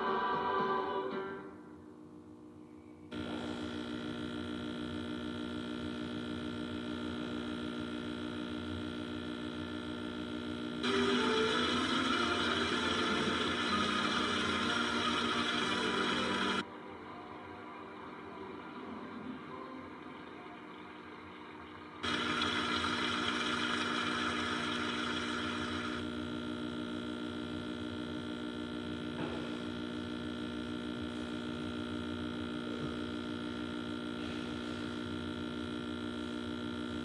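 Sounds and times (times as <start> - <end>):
held chord from television speaker: 3.1 - 16.6.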